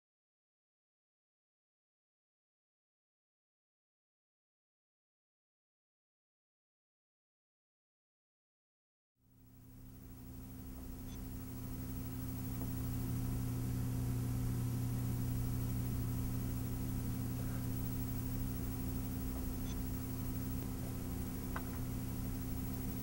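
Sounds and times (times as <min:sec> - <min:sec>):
low hum with faint hiss: 0:09.3 - 0:23.0.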